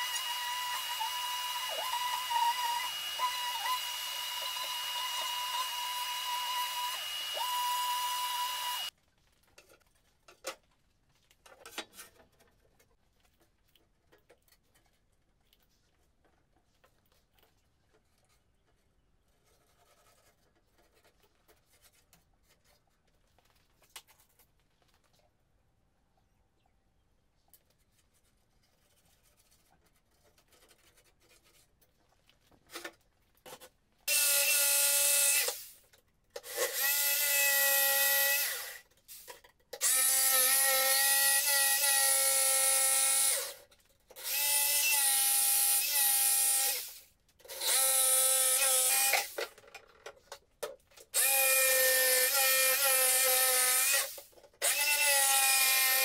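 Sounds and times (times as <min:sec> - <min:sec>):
electric drill whine: 0:00.0 - 0:08.9.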